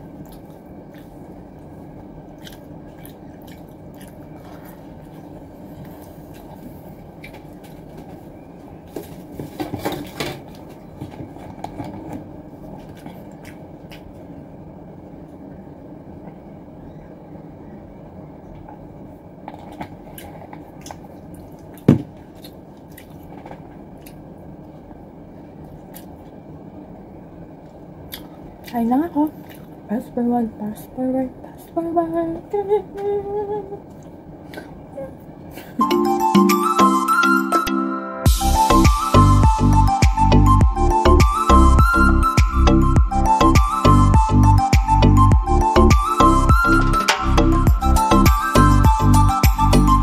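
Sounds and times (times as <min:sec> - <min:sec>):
background hum: 0:00.0 - 0:37.6, 0:38.2 - 0:50.0
chewing: 0:00.1 - 0:07.7, 0:11.4 - 0:14.3, 0:19.4 - 0:24.2, 0:25.6 - 0:26.4, 0:28.1 - 0:28.4, 0:29.3 - 0:29.8.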